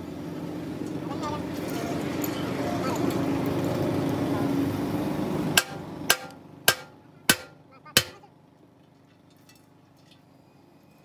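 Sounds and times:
steady background noise: 0.0 - 11.0
sharp knocks on metal: 5.6 - 8.3.

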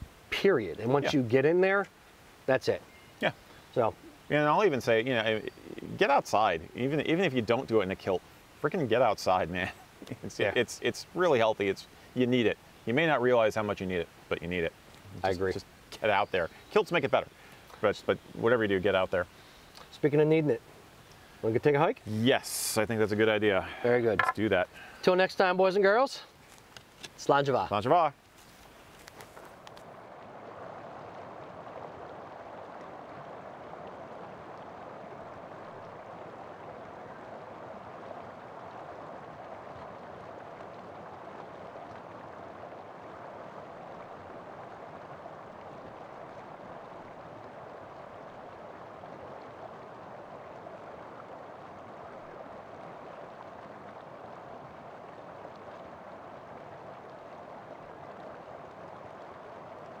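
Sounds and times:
creek running over rocks: 0.0 - 60.0.

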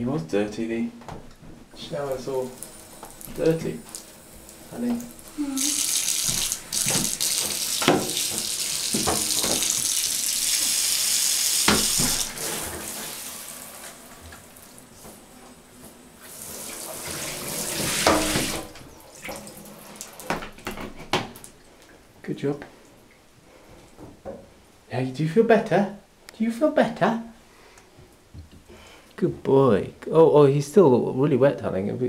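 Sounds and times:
shower water running: 1.8 - 21.7.

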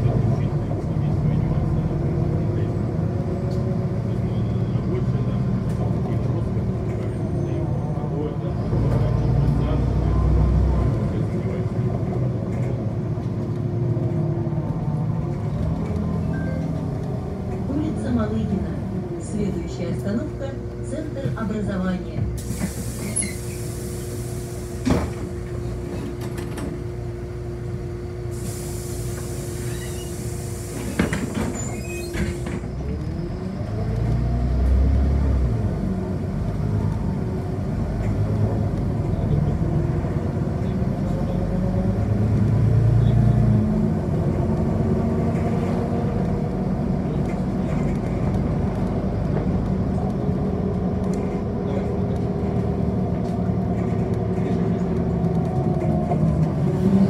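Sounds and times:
bus engine: 0.0 - 57.0
pneumatic hiss: 22.4 - 25.3, 28.3 - 32.6.

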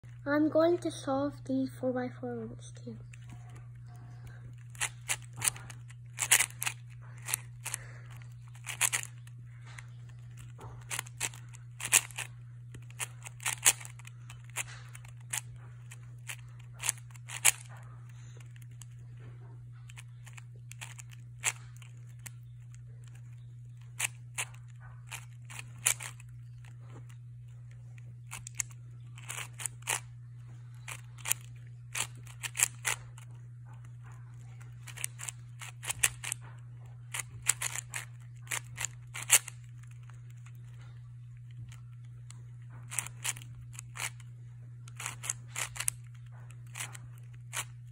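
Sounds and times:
steady low hum: 0.0 - 47.9
puzzle cube layers clacking: 4.5 - 17.7, 19.9 - 22.3, 24.0 - 26.2, 28.3 - 30.0, 30.9 - 33.2, 34.4 - 36.4, 37.1 - 39.6, 44.9 - 47.7.

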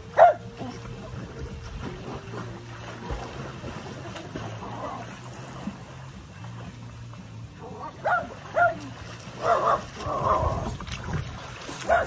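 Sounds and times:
pool water splashing: 0.0 - 12.0
small dog barking: 0.2 - 0.4, 8.0 - 8.8, 9.4 - 9.9
wind on microphone: 9.8 - 12.0.

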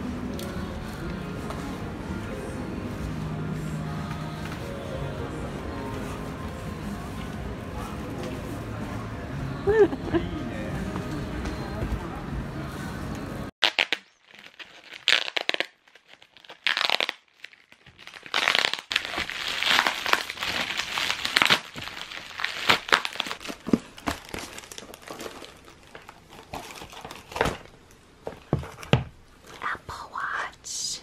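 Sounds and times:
plastic mailer crinkling: 13.6 - 27.8.

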